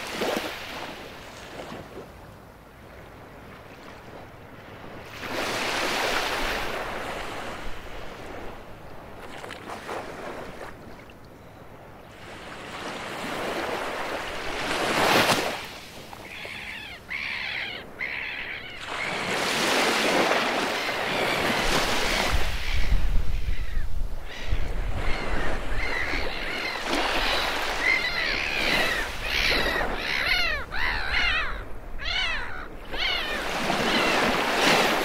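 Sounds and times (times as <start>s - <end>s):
waves washing onto beach: 0.0s - 2.2s, 12.1s - 17.6s, 18.7s - 30.9s, 32.4s - 35.0s.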